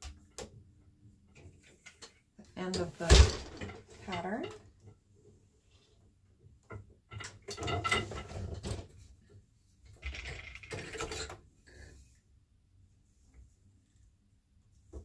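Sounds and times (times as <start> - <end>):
loom rattling and clattering: 1.3 - 4.8, 6.7 - 9.1, 9.9 - 11.4.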